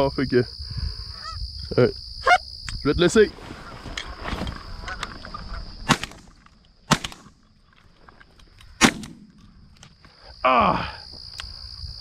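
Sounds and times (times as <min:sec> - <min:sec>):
shotgun shots: 0:05.8 - 0:07.4, 0:08.8 - 0:09.4
sharp crack: 0:05.8 - 0:07.6, 0:08.6 - 0:09.9.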